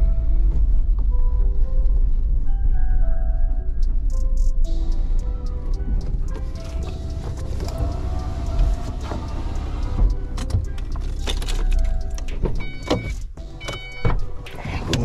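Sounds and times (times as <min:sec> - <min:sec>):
knocks and clicks: 0:03.8 - 0:15.0
van engine running: 0:04.6 - 0:15.0
electronic warning beeps: 0:09.2 - 0:14.5.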